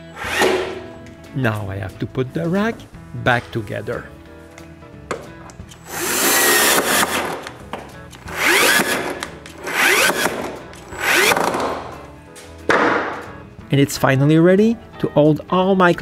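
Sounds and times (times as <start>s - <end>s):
cordless drill driving screws: 0.2s - 0.8s, 5.8s - 7.6s, 8.2s - 11.8s.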